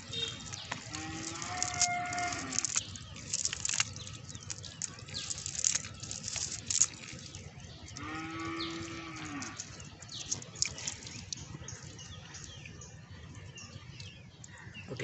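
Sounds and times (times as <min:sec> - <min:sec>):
net rustling on gravel: 0:00.0 - 0:11.2
cow mooing: 0:00.8 - 0:02.7, 0:08.0 - 0:09.6.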